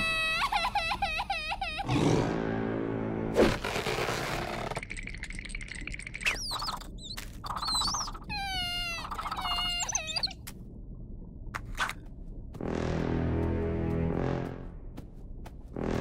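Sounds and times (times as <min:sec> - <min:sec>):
cartoon sobbing wails: 0:00.0 - 0:01.9, 0:08.3 - 0:10.3
short squeaky chirps: 0:06.2 - 0:10.4.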